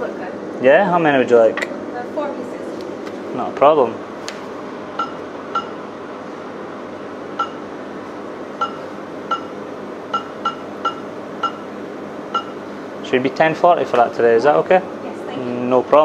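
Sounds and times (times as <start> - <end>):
steady low hum: 0.0 - 16.0
till keypad beeps: 5.0 - 5.8, 7.4 - 7.6, 8.6 - 11.6, 12.3 - 12.6.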